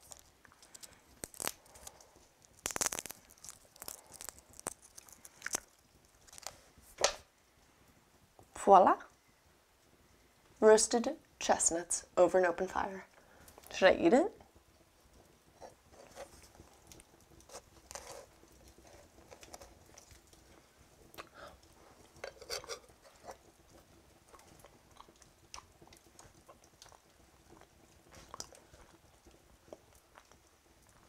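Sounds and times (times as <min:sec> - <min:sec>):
person chewing crunchily: 0:00.0 - 0:06.6, 0:15.6 - 0:31.0.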